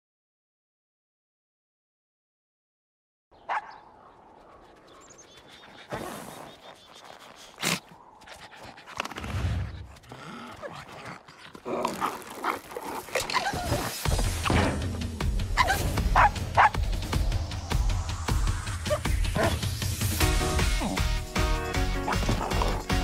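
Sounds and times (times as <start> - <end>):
soundtrack music: 13.8 - 23.0.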